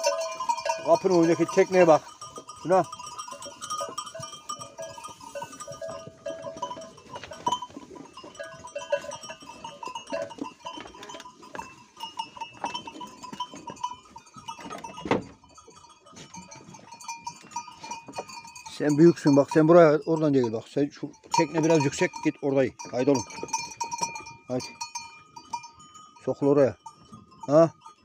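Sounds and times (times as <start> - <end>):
sheep knocking and shuffling: 0.0 - 19.6
animal bells clinking: 0.0 - 28.0.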